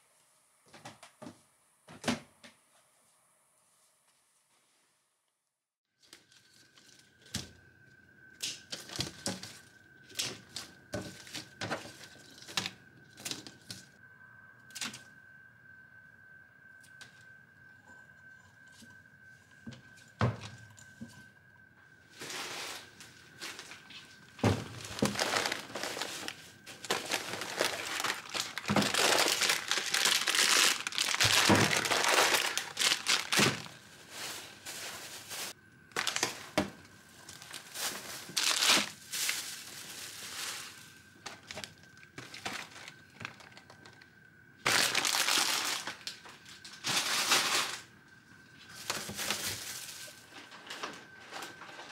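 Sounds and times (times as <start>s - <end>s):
packaging crinkling: 23.4s - 36.6s, 37.2s - 44.0s, 44.6s - 47.8s.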